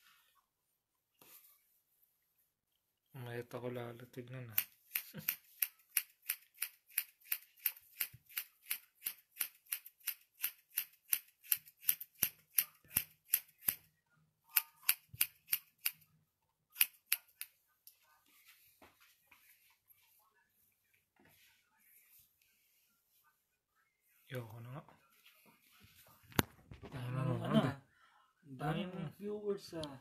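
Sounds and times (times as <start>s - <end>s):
scissors snipping hair: 4.5s - 13.8s, 14.5s - 16.0s, 16.7s - 17.5s.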